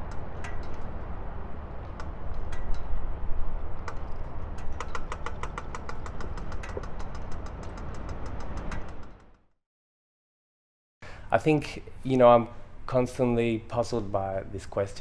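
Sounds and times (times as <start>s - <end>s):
traffic rumble: 0.0s - 9.5s, 11.0s - 15.0s
rapid evenly spaced ticks: 3.6s - 9.4s.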